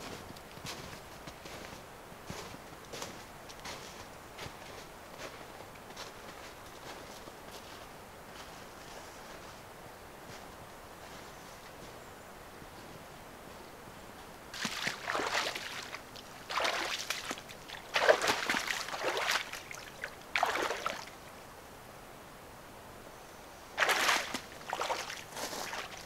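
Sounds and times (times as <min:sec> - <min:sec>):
boots sloshing through water: 0:14.5 - 0:21.2, 0:23.8 - 0:26.0.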